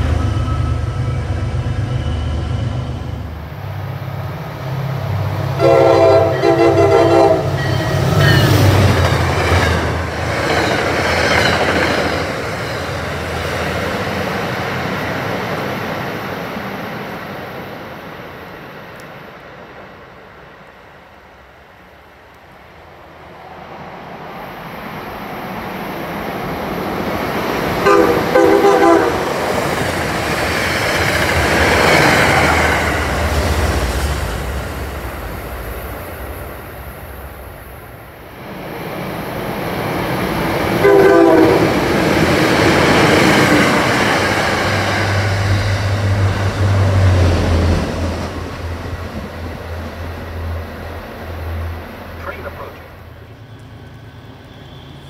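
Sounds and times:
train wheels on rails: 0.0s - 55.0s
train horn blast: 5.6s - 8.5s, 27.8s - 29.4s, 40.8s - 41.7s
diesel engine drone: 50.4s - 53.6s.

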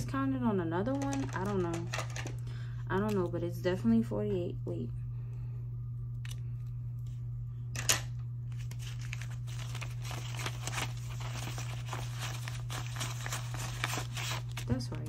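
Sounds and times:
low hum: 0.0s - 15.0s
banknotes rustling: 0.9s - 2.4s, 7.8s - 15.0s.

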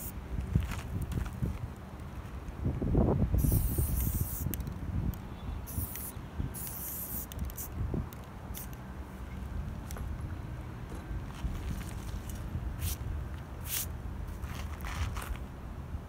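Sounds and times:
spray paint can hissing: 3.4s - 4.8s, 5.6s - 7.8s, 12.8s - 13.0s, 13.6s - 13.9s.

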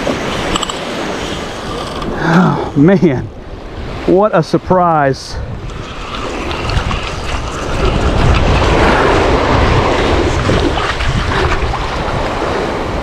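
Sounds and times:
surf washing up beach: 0.0s - 13.0s
wind buffeting microphone: 5.1s - 13.0s.

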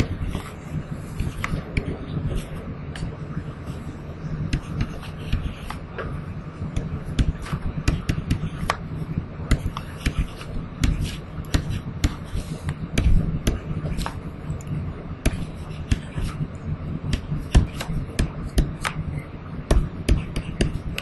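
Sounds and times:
low hum: 0.0s - 21.0s
stylus tapping on tablet: 4.5s - 5.8s, 6.7s - 14.2s, 17.0s - 21.0s.

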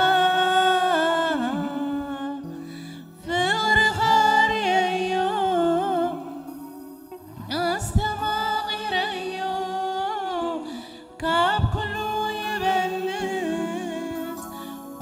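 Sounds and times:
woman singing gospel: 0.0s - 15.0s.

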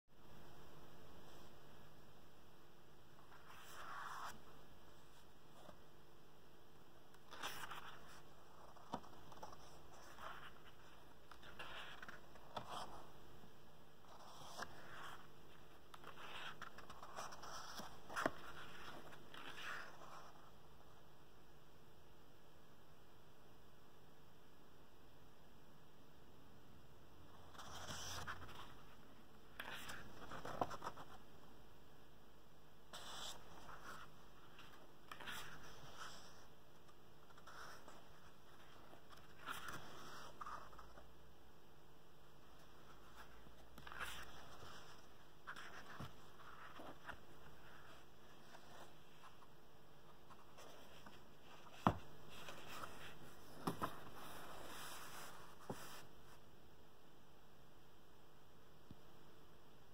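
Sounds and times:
paper pages rustling: 7.2s - 13.1s, 14.1s - 20.5s, 27.4s - 31.2s, 33.0s - 41.0s, 42.5s - 56.1s.

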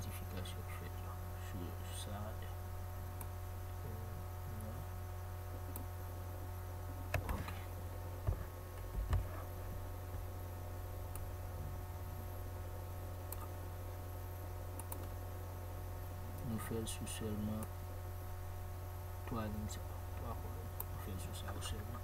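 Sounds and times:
steady low hum: 0.0s - 22.0s
computer mouse clicking: 14.8s - 15.1s.

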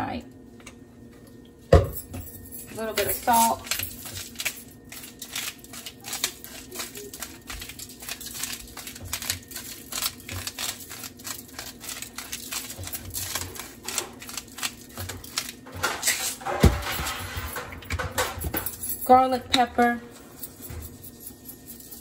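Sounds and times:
beans tossed on foil: 2.8s - 18.3s.

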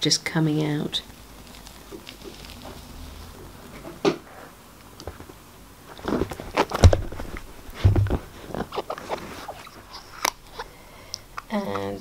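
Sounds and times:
low thumps: 6.1s - 8.6s.

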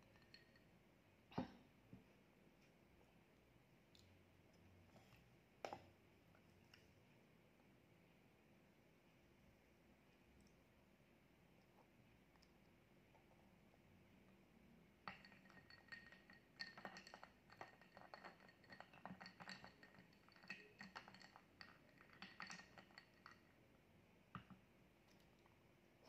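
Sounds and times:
spoon clinking against glass: 0.0s - 0.7s, 15.1s - 23.5s.

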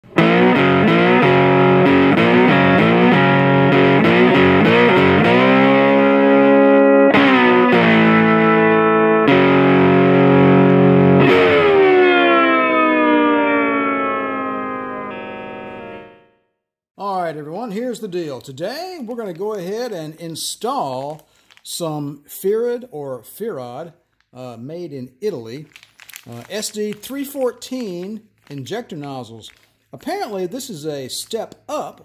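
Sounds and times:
distorted electric guitar chords: 0.0s - 16.4s.

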